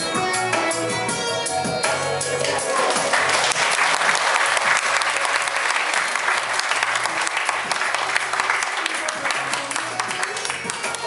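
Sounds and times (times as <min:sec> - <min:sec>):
audience clapping: 0:02.4 - 0:11.0.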